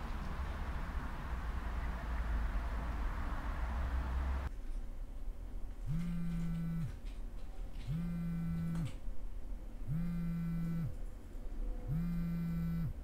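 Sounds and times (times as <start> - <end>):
mobile phone vibrating against desk: 5.9 - 7.0, 7.9 - 9.0, 9.9 - 11.0, 11.9 - 13.0.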